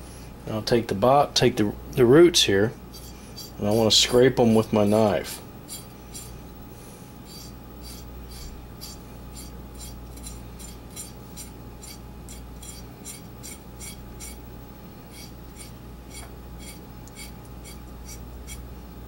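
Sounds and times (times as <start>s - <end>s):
knife scraping radish roots: 2.9s - 6.3s, 7.3s - 14.4s, 15.1s - 18.6s.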